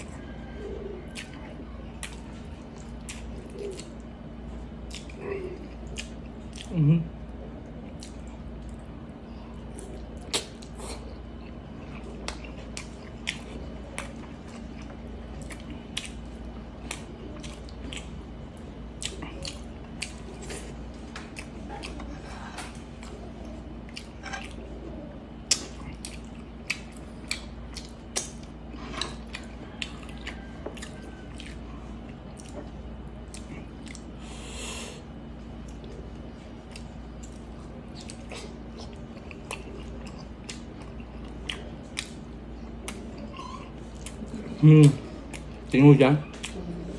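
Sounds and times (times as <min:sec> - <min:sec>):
chewing and lip-smacking: 0:00.0 - 0:46.9
faint steady hum: 0:00.0 - 0:46.9
wet mouth clicks: 0:10.2 - 0:11.0.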